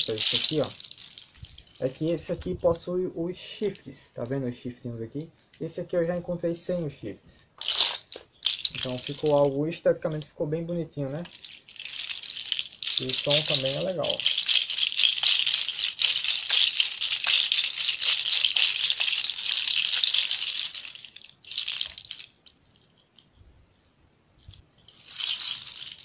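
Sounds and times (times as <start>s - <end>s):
hoof rattle clattering: 0.0s - 2.9s, 7.6s - 10.4s, 11.1s - 23.0s, 24.4s - 26.0s.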